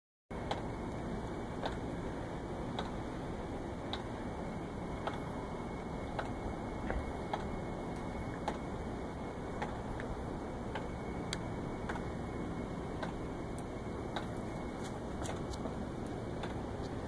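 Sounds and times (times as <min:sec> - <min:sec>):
sharp ticking clicks: 0:01.6 - 0:01.9, 0:02.7 - 0:03.0, 0:05.0 - 0:05.3, 0:10.7 - 0:12.1, 0:13.0 - 0:17.0.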